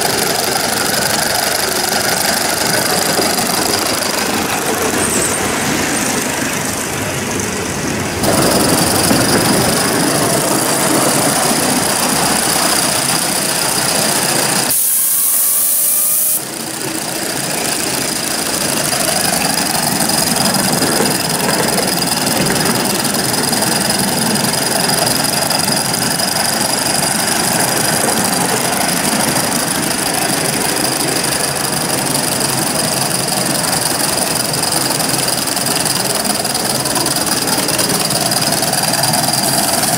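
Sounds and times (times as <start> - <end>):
steam hissing: 0.0 - 39.9
wheels running on track: 0.0 - 39.9.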